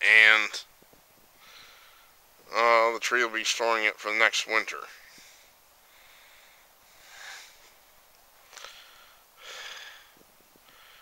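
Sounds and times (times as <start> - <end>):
man breathing or sniffing: 5.0 - 7.8, 8.5 - 11.0.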